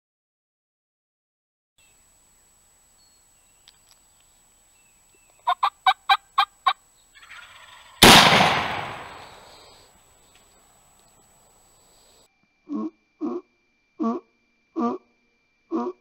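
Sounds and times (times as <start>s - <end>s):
turkey yelping: 5.4s - 8.0s
shotgun shot echoing: 8.0s - 9.5s.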